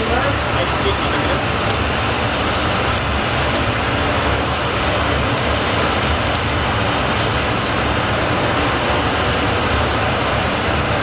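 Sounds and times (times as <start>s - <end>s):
high electronic beep: 0.0s - 7.0s.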